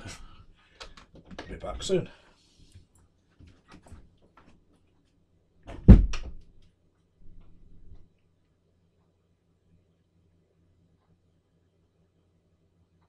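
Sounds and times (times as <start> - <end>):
door shutting with a thud: 5.7 - 6.4.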